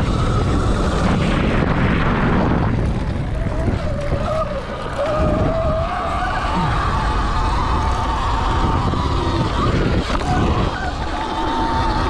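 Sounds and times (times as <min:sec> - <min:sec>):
wind buffeting microphone: 0:00.0 - 0:12.0
electric motor whine: 0:04.0 - 0:12.0.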